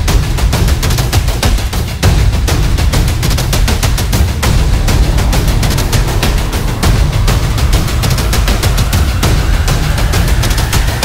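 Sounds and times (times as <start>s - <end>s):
music with fast percussion and bass: 0.0s - 11.0s.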